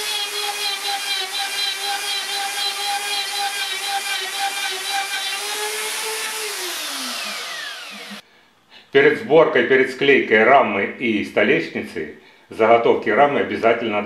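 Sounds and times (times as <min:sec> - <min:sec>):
router motor whine: 0:00.0 - 0:08.2.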